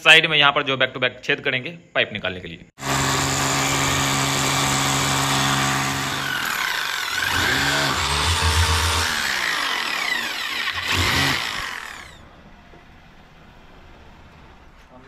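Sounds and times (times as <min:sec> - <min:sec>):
electric drill boring into brick: 0:02.8 - 0:12.2.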